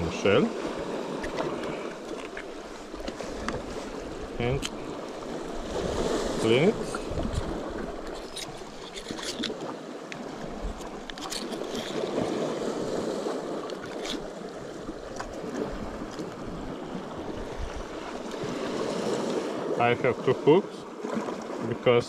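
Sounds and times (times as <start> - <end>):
waves washing against rocky shore: 0.0 - 22.0.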